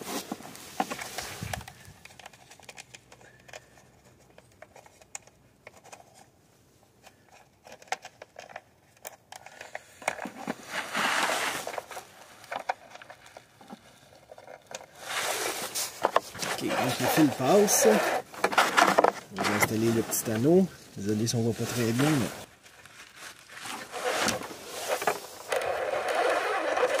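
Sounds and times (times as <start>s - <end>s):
gloved hands rustling wire: 7.0s - 27.0s
jacket sleeve rubbing microphone: 15.0s - 18.3s.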